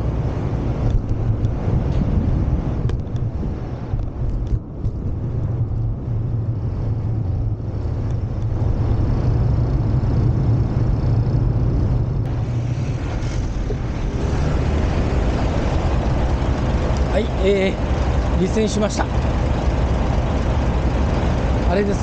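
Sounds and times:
diesel engines idling: 0:04.7 - 0:22.0.

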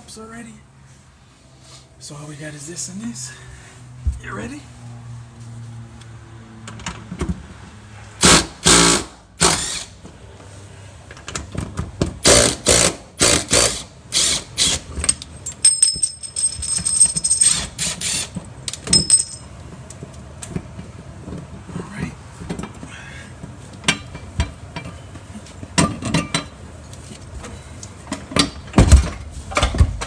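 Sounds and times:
impact wrench hammering: 0:12.2 - 0:19.4.

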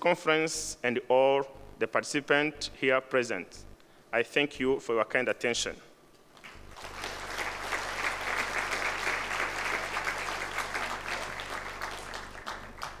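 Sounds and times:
large audience applauding: 0:06.4 - 0:13.0.

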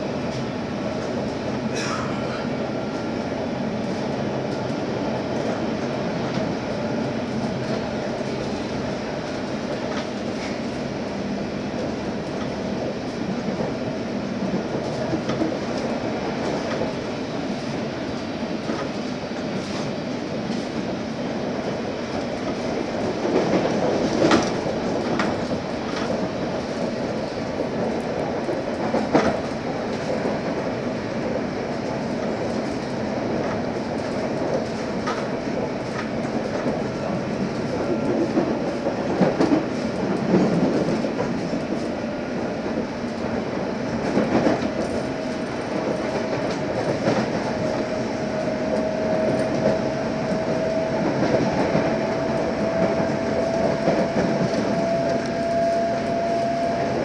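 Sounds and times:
train wheels running on rail: 0:00.0 - 0:57.0
clacks over rail joints: 0:22.4 - 0:27.0, 0:27.6 - 0:30.6, 0:31.8 - 0:41.9.

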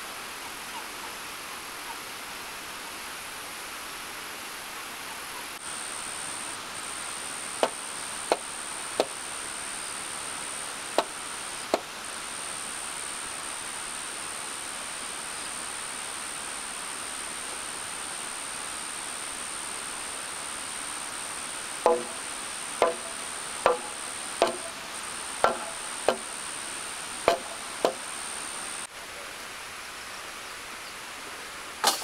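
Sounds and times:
wooden mallet knocking on timber: 0:21.9 - 0:22.2, 0:22.8 - 0:24.8, 0:25.4 - 0:26.3, 0:27.3 - 0:28.0.

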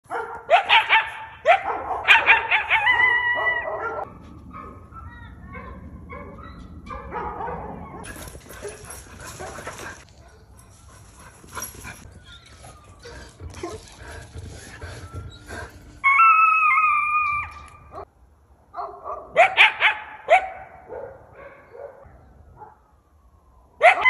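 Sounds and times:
coyote barking and yipping: 0:00.1 - 0:18.1, 0:18.8 - 0:22.0, 0:23.8 - 0:24.0
coyote howling: 0:14.9 - 0:18.0.

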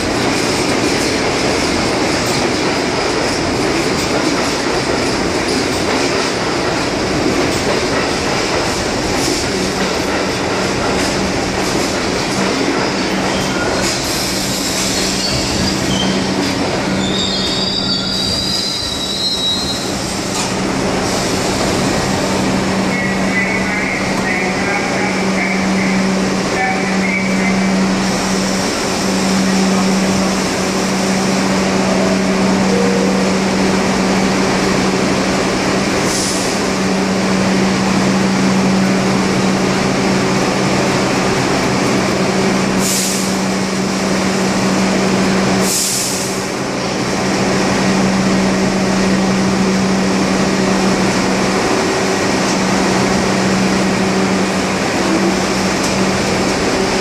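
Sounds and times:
air hissing: 0:42.8 - 0:43.4, 0:45.6 - 0:46.4.

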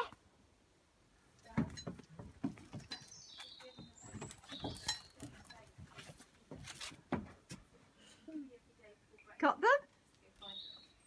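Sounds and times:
footsteps on wooden boards: 0:01.5 - 0:07.8
bird chirps: 0:02.9 - 0:05.2, 0:10.4 - 0:11.0.

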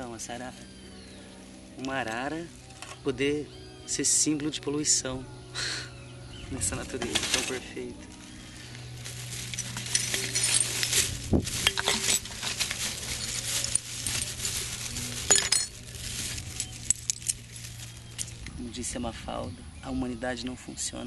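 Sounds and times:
hands rustling through grass: 0:06.3 - 0:18.5
litter crinkling: 0:06.6 - 0:18.6.

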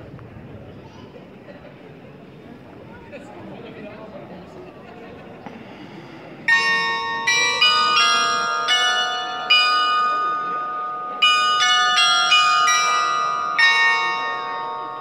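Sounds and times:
glockenspiel bells playing a tune: 0:06.5 - 0:15.0.

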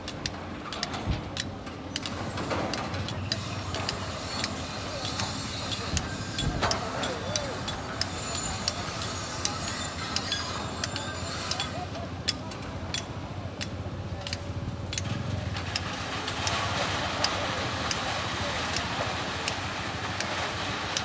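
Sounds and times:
diesel engine running: 0:13.4 - 0:21.0.

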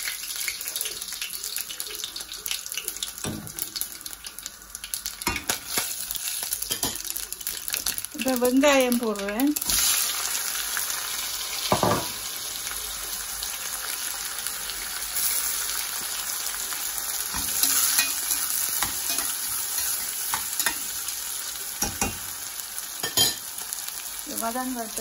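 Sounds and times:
onions sizzling in oil: 0:00.0 - 0:25.0
knock on pot: 0:11.7 - 0:12.1.

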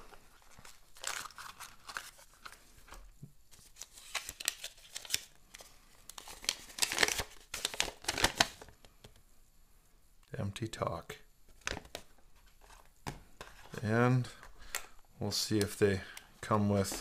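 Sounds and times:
paper crinkling and rustling: 0:00.0 - 0:08.8.

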